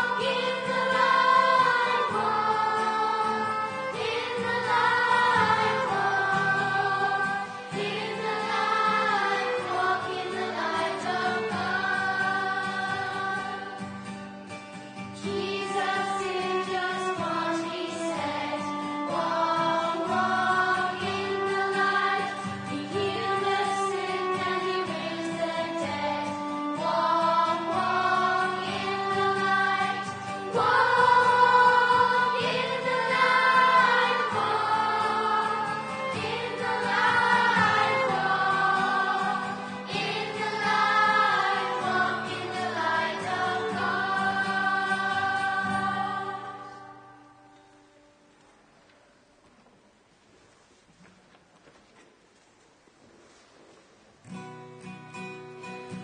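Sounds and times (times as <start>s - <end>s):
voices singing a hymn: 0.0s - 14.2s, 15.1s - 47.5s
instrumental accompaniment: 0.0s - 46.0s.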